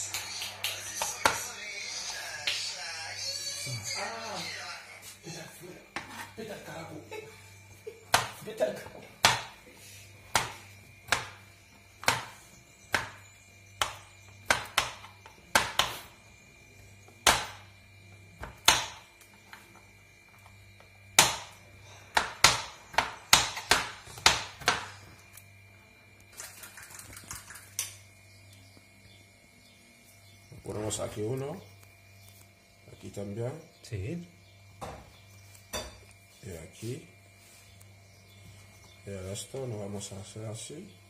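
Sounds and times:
knife chopping on plastic board: 0:08.1 - 0:08.4, 0:09.2 - 0:09.6, 0:10.3 - 0:11.4, 0:12.0 - 0:13.2, 0:13.8 - 0:16.1, 0:17.2 - 0:17.6, 0:18.4 - 0:19.0, 0:21.2 - 0:21.5, 0:22.1 - 0:24.9.

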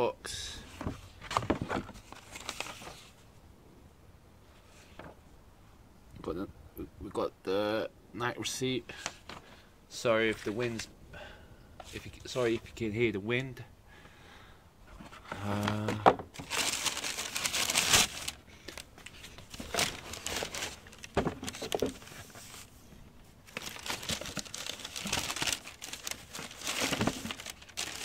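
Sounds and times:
tissue paper crinkling: 0:02.0 - 0:03.1, 0:16.4 - 0:28.0.

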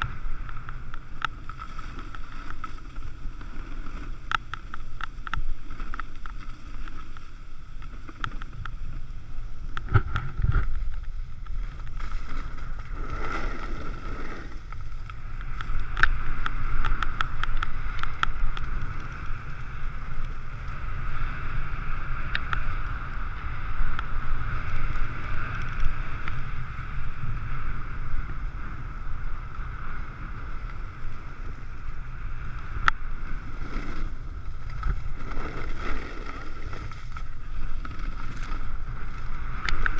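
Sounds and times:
small clicks: 0:00.0 - 0:09.0, 0:14.5 - 0:20.8, 0:34.6 - 0:39.9
skis scraping over packed snow: 0:00.0 - 0:39.9
wind rushing over microphone: 0:00.0 - 0:39.9.

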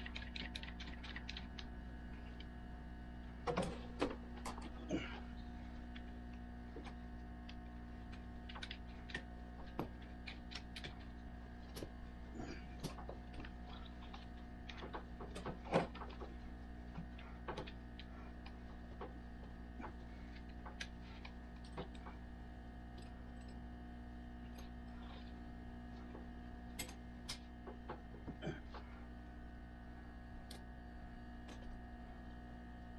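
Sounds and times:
steady hum: 0:00.0 - 0:32.9.

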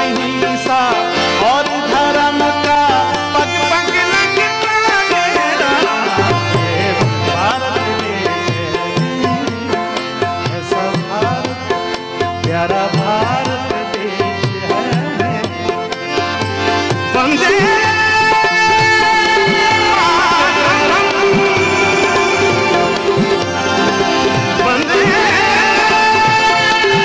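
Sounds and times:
electronic keyboard melody: 0:00.0 - 0:27.0
harmonium: 0:00.0 - 0:27.0
tabla rhythm: 0:00.0 - 0:27.0.

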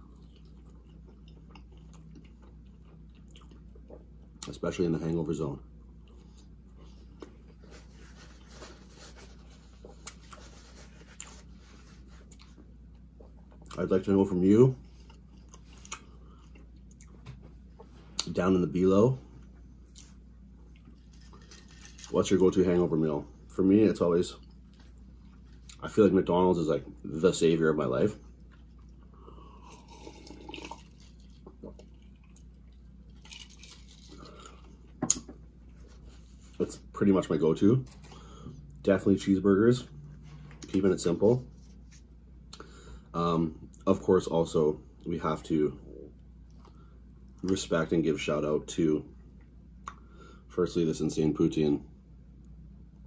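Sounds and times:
close chewing with mouth clicks: 0:00.0 - 0:04.5
paper napkin rustling: 0:07.5 - 0:12.4
person swallowing a drink: 0:29.6 - 0:32.0.

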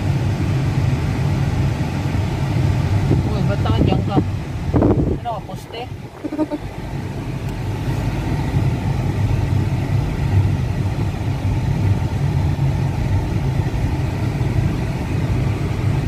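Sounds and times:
car interior engine drone: 0:00.0 - 0:16.0.

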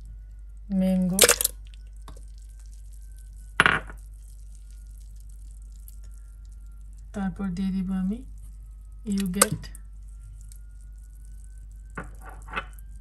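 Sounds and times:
clink and splash: 0:01.2 - 0:02.3.

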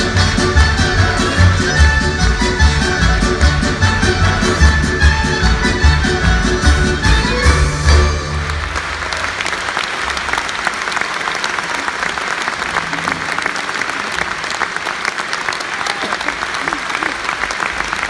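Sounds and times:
folk orchestra music: 0:00.0 - 0:09.2
audience applauding: 0:00.0 - 0:18.0.

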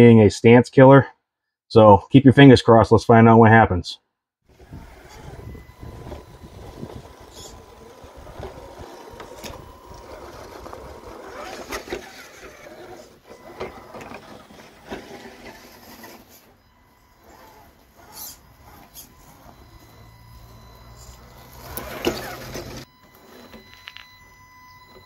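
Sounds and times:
tires scrabbling on rock: 0:04.5 - 0:23.7
electric motor and gears whining: 0:04.5 - 0:25.0.

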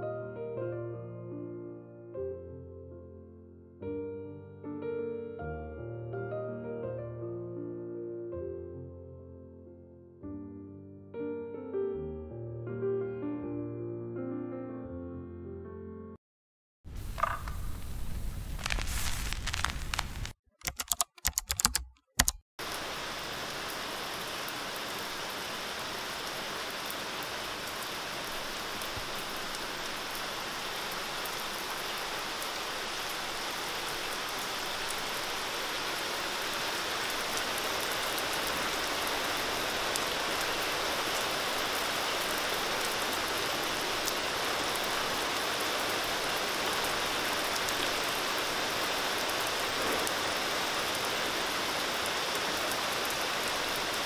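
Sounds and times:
rain falling on deck and trees: 0:17.0 - 0:20.4, 0:22.6 - 0:54.0
brief noises: 0:17.1 - 0:20.4.

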